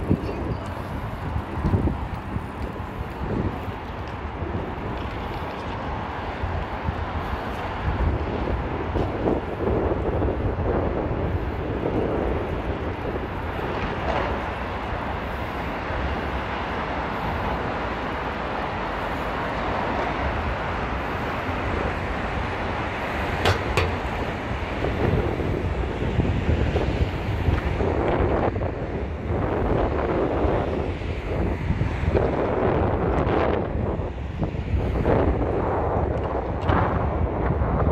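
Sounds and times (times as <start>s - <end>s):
city traffic hum: 0.0s - 37.9s
wind buffeting microphone: 0.0s - 37.9s.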